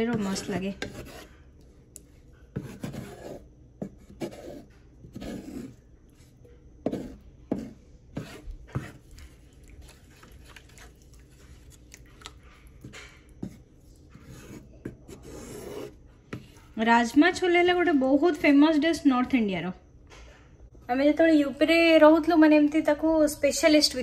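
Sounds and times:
wooden spatula scraping a pan: 0:00.0 - 0:01.4, 0:06.9 - 0:11.8.

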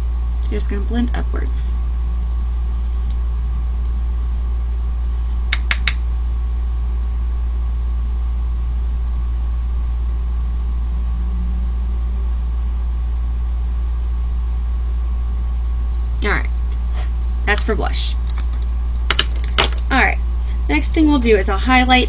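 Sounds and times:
steady low hum: 0:00.0 - 0:22.0
quick clicks: 0:05.5 - 0:06.0.

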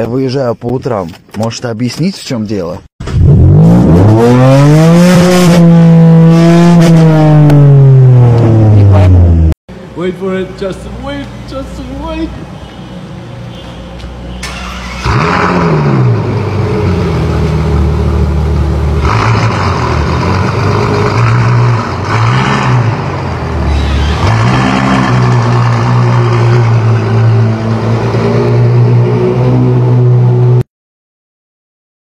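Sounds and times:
car engine revving: 0:03.0 - 0:09.6, 0:14.4 - 0:30.6.

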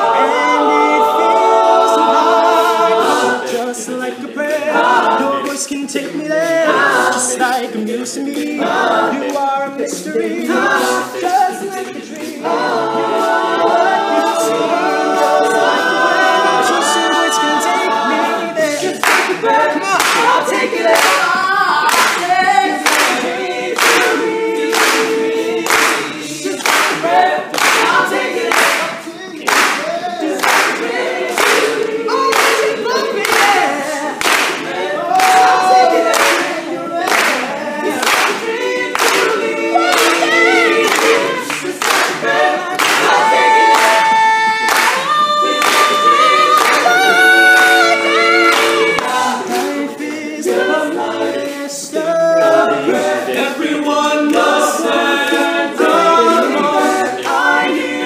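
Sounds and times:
male group singing in harmony: 0:00.0 - 0:58.0
handclaps: 0:05.4 - 0:06.1, 0:19.0 - 0:19.4, 0:20.0 - 0:50.7.

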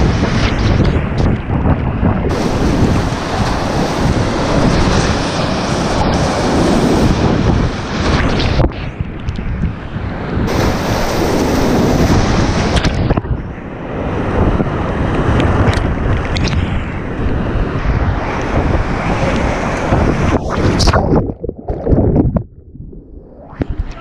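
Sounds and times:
water buffeting microphone: 0:00.0 - 0:24.0
whitewater rushing and splashing: 0:02.3 - 0:08.6, 0:10.5 - 0:13.1.

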